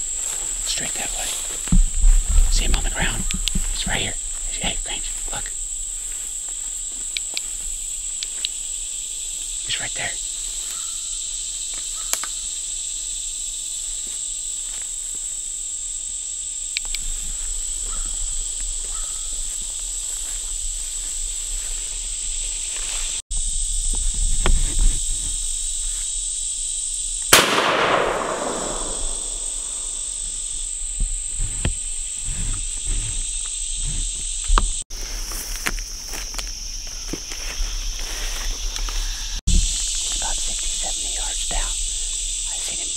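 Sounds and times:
high-pitched insects droning: 0.0 - 42.9
gunshot echoing: 27.3 - 30.1.

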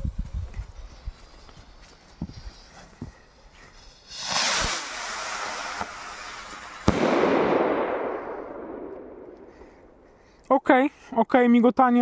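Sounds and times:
firework crackling fizz: 3.7 - 8.8
firework rocket whoosh: 3.7 - 9.6
firework bang: 4.1 - 9.8.

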